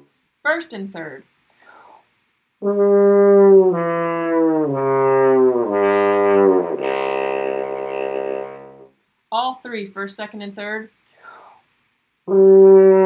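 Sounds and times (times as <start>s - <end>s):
french horn pitch-bending notes: 2.6s - 8.9s, 12.3s - 13.0s.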